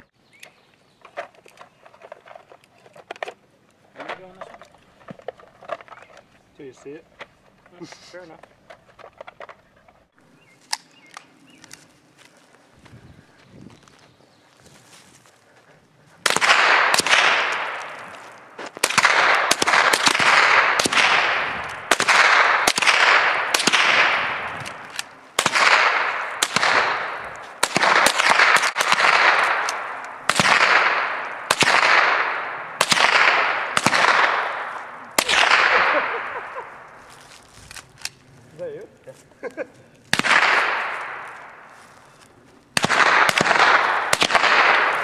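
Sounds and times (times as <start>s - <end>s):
rifle shots with ringing echo: 16.2s - 37.1s, 40.1s - 45.0s.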